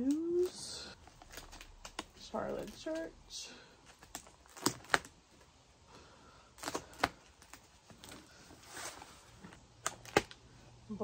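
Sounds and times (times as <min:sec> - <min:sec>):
plastic cd cases clacking: 0:01.0 - 0:03.1, 0:03.8 - 0:05.5, 0:09.8 - 0:10.4.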